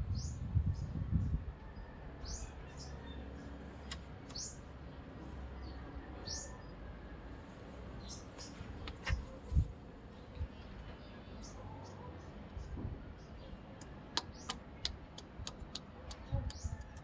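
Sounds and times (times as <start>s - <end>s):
low microphone rumble: 0.0s - 1.9s
small bird chirping: 3.8s - 4.6s.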